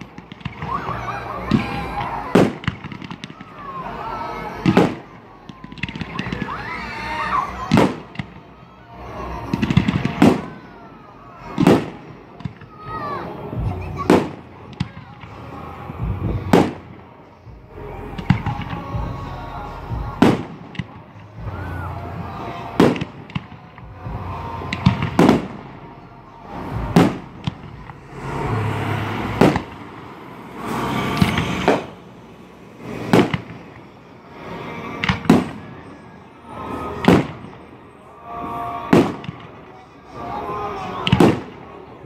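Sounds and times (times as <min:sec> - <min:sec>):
rushing noise: 0:23.9 - 0:42.0
firework shells bursting: 0:26.6 - 0:34.2.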